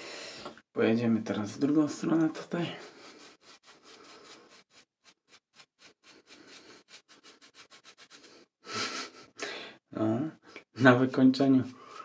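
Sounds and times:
shaving brush rubbing lather: 1.6 - 9.3.

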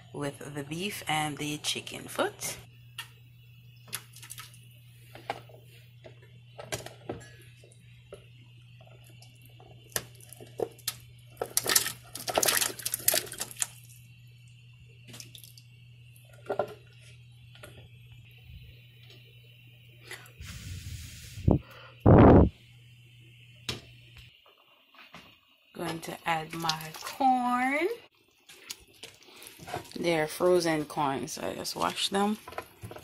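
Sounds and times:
steady low hum: 0.0 - 24.5
chunks splashing into boiling water: 3.9 - 4.6, 8.8 - 14.0, 25.8 - 30.2.

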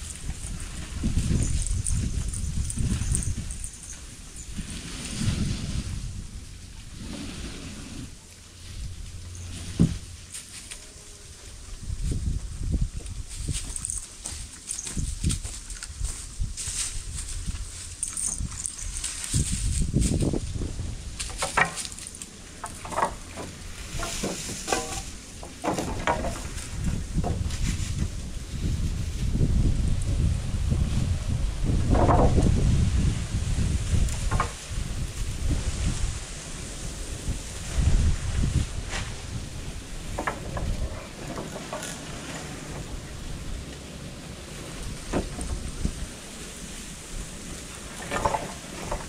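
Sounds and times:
wind buffeting microphone: 0.0 - 10.3, 11.4 - 21.6, 22.4 - 49.0
wooden boards knocking and scraping: 21.3 - 22.0, 22.6 - 27.7, 31.9 - 32.5, 34.2 - 34.6, 40.1 - 42.9, 45.0 - 45.9, 47.9 - 49.0
lumber knocking: 22.7 - 26.5.

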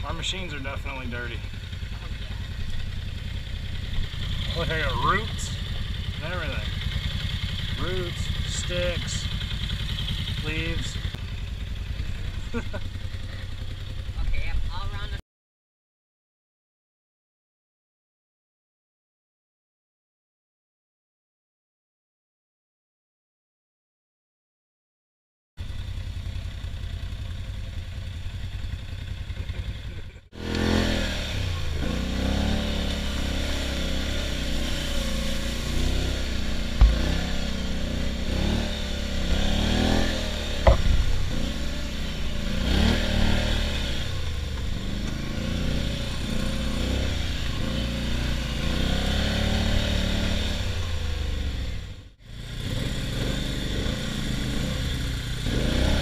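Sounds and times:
atv engine revving: 0.0 - 15.2, 25.6 - 56.0
sharp knocks: 36.8 - 37.5, 40.6 - 41.2.

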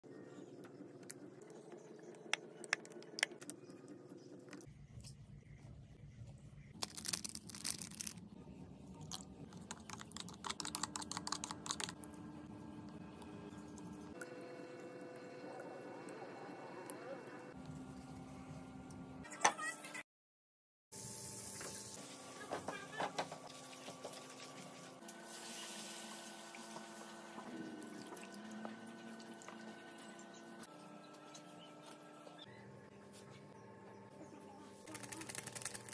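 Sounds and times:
fat sizzling in frying pan: 23.6 - 27.2.

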